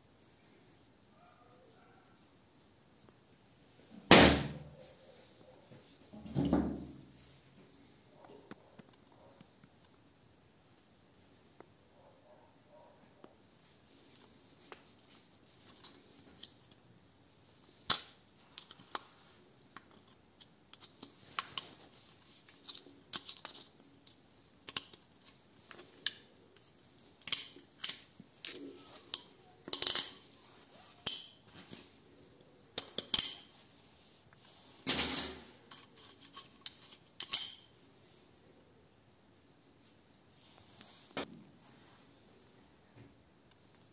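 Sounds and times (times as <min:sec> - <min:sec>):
screwdriver scraping metal: 0:35.7 - 0:37.6.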